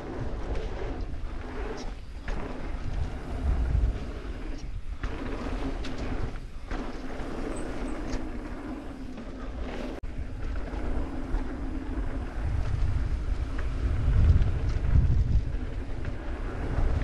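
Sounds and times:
bike tyres rolling on dirt: 0.0 - 17.0
wind buffeting microphone: 0.0 - 17.0.

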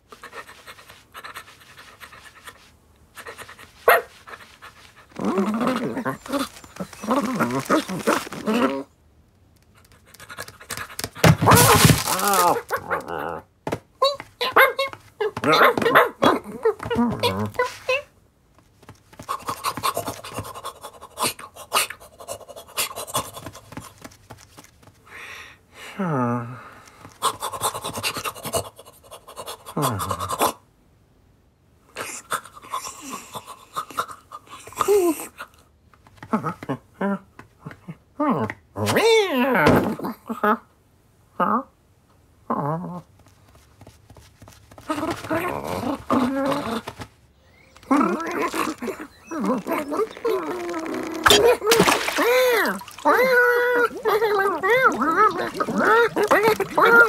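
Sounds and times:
puppy claws scrabbling: 5.1 - 8.8, 9.4 - 13.4, 18.8 - 21.3, 43.2 - 47.2, 47.8 - 57.0
cartoon puppy panting: 19.2 - 23.8, 27.2 - 30.4.

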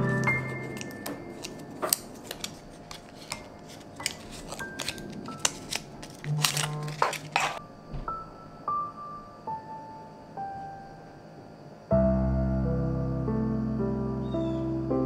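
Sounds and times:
soft piano music: 0.0 - 15.0
plastic wrap peeling and crinkling: 0.2 - 7.6.

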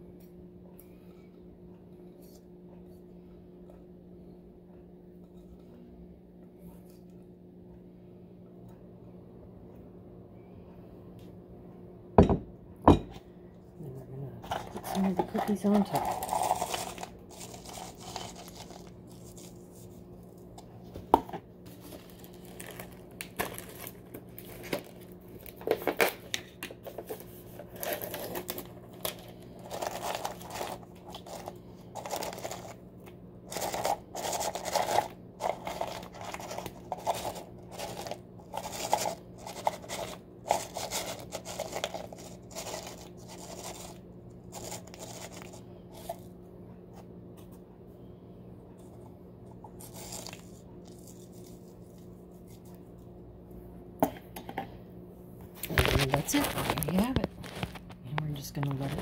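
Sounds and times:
faint steady hum: 0.0 - 59.0
cookies rattling in plastic tub: 14.4 - 19.7, 21.8 - 32.8, 33.5 - 46.2, 55.6 - 59.0.

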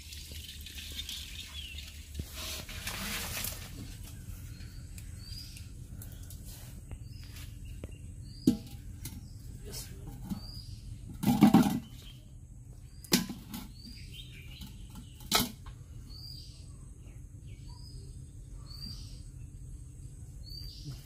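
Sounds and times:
clatter in metal pot: 11.1 - 11.9, 13.1 - 13.9, 14.5 - 15.6.

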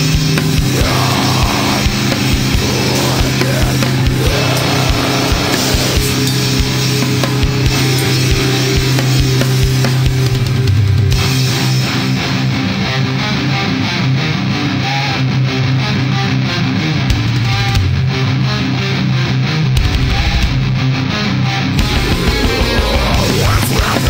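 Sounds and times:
pounding drum kit: 0.0 - 12.5, 17.1 - 18.1, 21.7 - 24.0
distorted electric guitars: 0.0 - 24.0.

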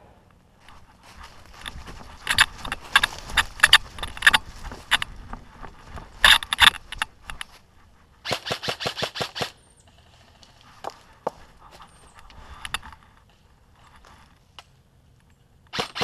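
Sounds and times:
footsteps on dry leaves: 0.6 - 8.3.

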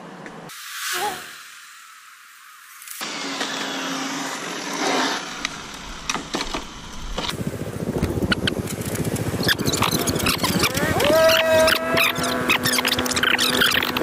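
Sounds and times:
rc car motor and tyre noise: 0.8 - 14.0
rapid rough rumble: 5.4 - 14.0.

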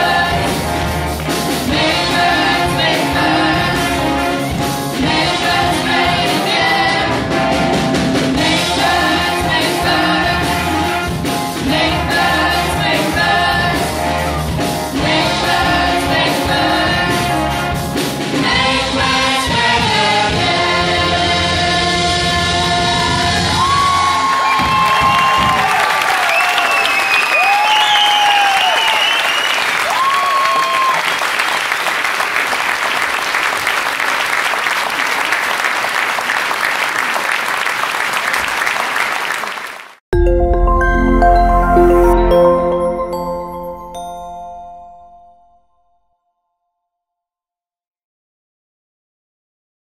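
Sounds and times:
group singing: 0.0 - 0.7, 1.6 - 4.2, 5.0 - 7.3, 8.4 - 14.1, 14.9 - 17.5, 18.4 - 23.4
live band with drums and keyboard: 0.0 - 26.1
audience applauding: 23.4 - 40.0.

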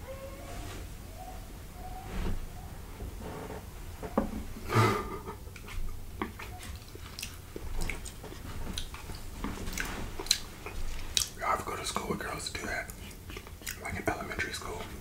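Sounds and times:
close chewing: 5.5 - 11.4, 12.5 - 14.6.

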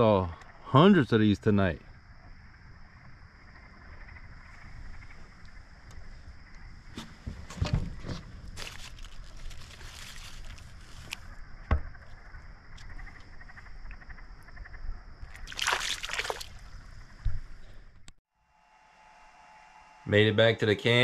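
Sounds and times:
splashing rush: 15.5 - 16.5
steady high whine: 18.4 - 21.0.

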